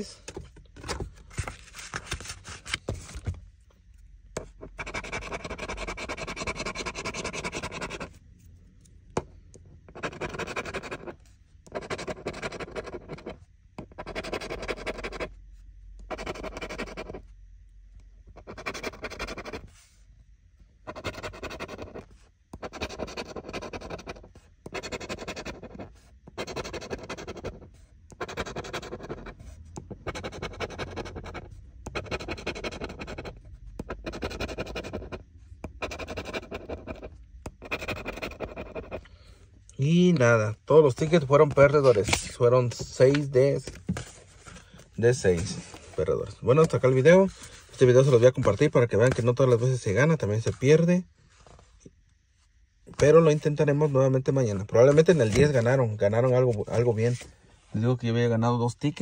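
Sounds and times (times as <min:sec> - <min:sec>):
pen scraping lottery ticket: 0:04.4 - 0:08.2, 0:09.9 - 0:15.3, 0:16.0 - 0:17.2, 0:18.4 - 0:19.7, 0:20.9 - 0:39.1.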